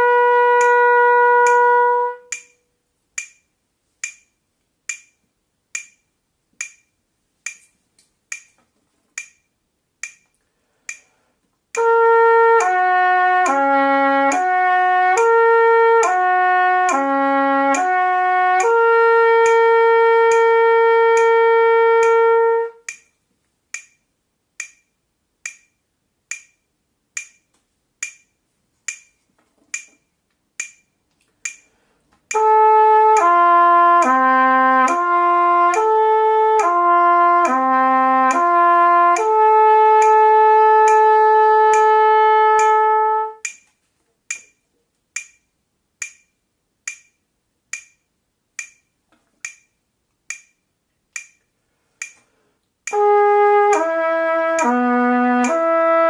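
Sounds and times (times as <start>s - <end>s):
trumpet lip-slur exercise: 0.0s - 2.5s, 11.8s - 23.0s, 32.3s - 43.5s, 52.9s - 56.0s
metronome clicking: 0.0s - 56.0s.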